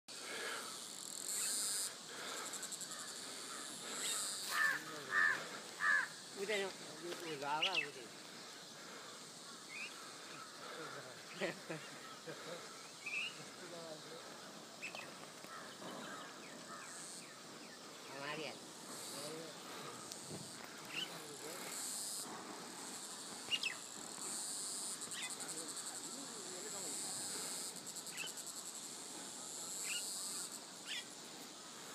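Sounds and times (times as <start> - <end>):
faint high hiss: 0.1 - 15.6, 16.4 - 31.9
high-pitched insect drone: 0.1 - 31.9
crow cawing: 2.2 - 6.3, 15.4 - 17.1
bird chirps: 12.9 - 13.4, 23.5 - 23.8.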